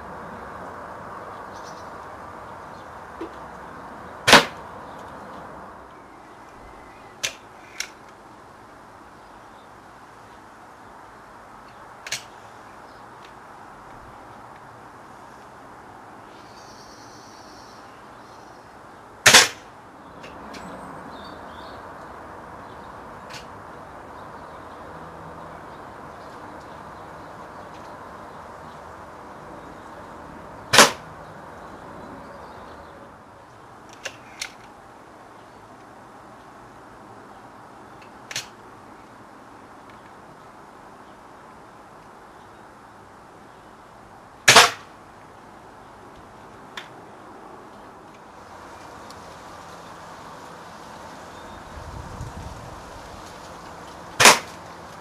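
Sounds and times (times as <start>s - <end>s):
air rifle shot: 4.3s - 4.6s, 19.3s - 19.7s, 30.7s - 31.0s, 44.5s - 44.9s, 54.2s - 54.6s.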